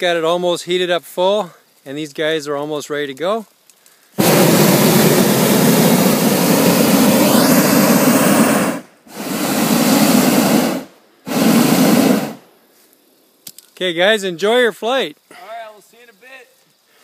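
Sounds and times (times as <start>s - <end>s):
propane burner blasts: 4.1s - 12.5s.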